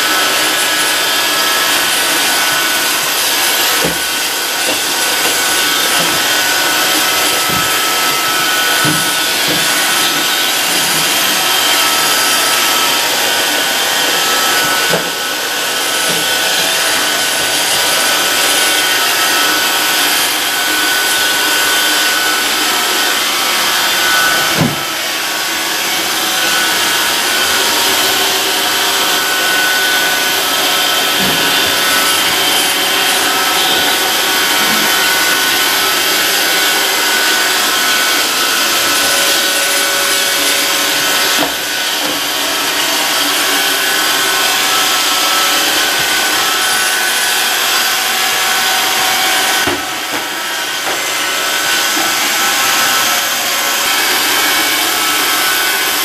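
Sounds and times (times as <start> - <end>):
robot vacuum whirring: 0.0 - 53.4
robot vacuum knocks: 24.6 - 24.8.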